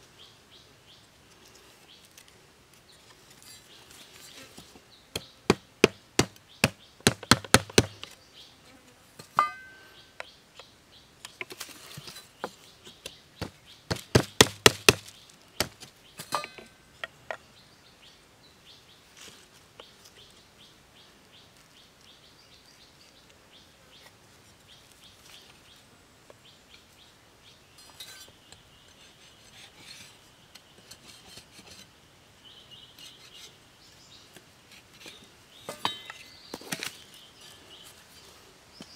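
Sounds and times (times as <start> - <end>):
handling of sticks: 1.3 - 8.2, 9.2 - 10.3, 11.2 - 17.4, 34.3 - 38.9
machete chopping wooden stick: 5.2 - 8.1, 13.4 - 16.6
faint bird chirps: 32.4 - 34.4.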